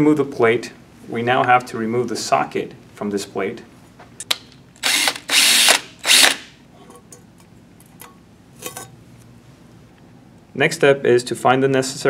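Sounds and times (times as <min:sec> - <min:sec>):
cordless drill running: 0:04.8 - 0:06.5.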